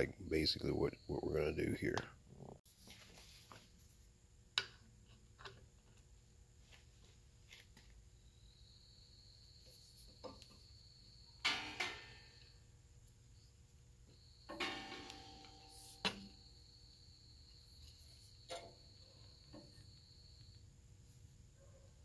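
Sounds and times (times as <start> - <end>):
rubber hose rustling scrape: 2.7 - 4.0.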